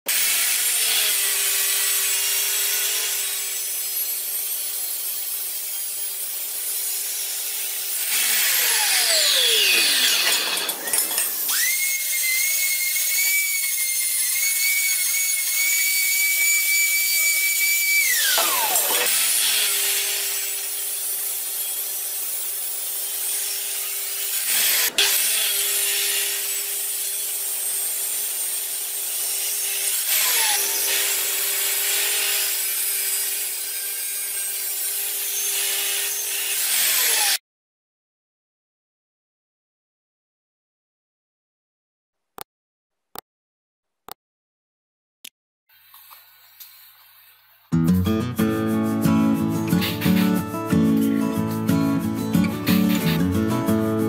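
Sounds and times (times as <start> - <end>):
angle grinder grinding metal: 0.1 - 37.4, 48.3 - 54.0
chop saw cutting metal tubing: 0.1 - 37.4, 48.0 - 54.0.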